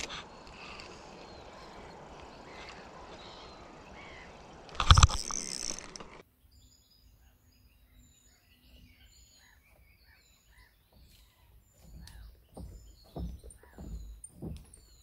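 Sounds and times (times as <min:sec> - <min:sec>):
small birds chirping: 0:00.0 - 0:05.8, 0:06.4 - 0:15.0
footsteps on wooden boards: 0:09.6 - 0:15.0.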